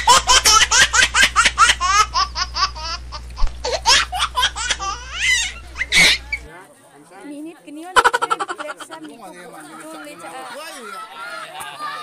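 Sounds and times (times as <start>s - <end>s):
high-pitched laughter: 0.0s - 6.4s, 8.0s - 8.9s.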